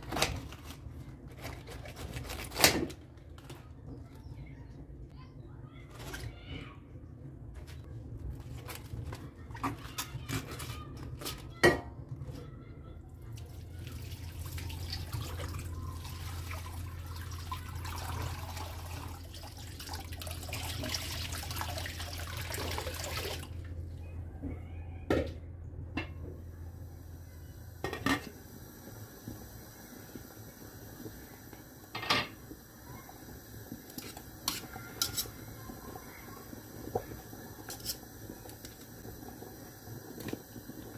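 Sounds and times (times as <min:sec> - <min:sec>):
water pouring into metal pot: 0:13.4 - 0:23.6, 0:27.9 - 0:40.9.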